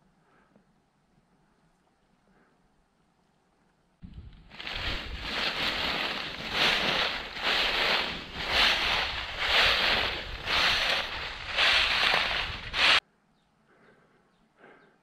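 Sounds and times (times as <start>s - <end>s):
footsteps crunching dry leaves: 4.5s - 13.0s.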